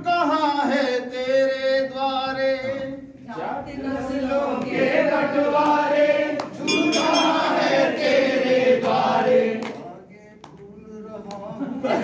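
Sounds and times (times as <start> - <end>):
men singing in chorus: 0.0 - 9.8
sharp claps or knocks: 5.6 - 11.5
metallic clink: 6.7 - 7.5.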